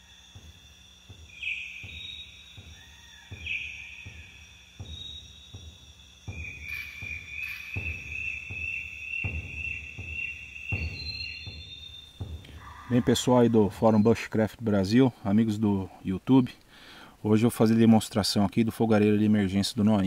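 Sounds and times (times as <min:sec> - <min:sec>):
low thuds: 0:00.0 - 0:15.2
insects chirring: 0:00.0 - 0:20.0.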